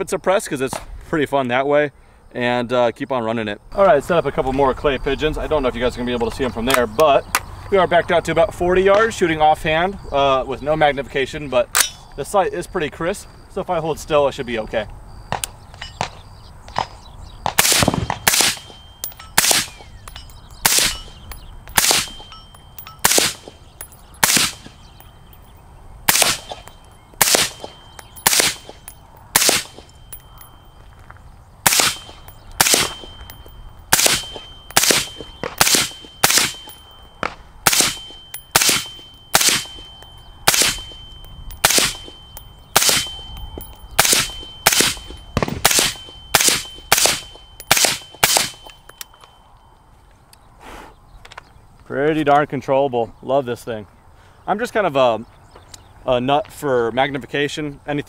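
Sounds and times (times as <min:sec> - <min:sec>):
suppressed rifle shots: 0:16.8 - 0:18.8, 0:19.4 - 0:22.2, 0:23.0 - 0:24.8, 0:26.1 - 0:29.9, 0:31.6 - 0:42.2, 0:42.8 - 0:43.3, 0:44.0 - 0:48.7.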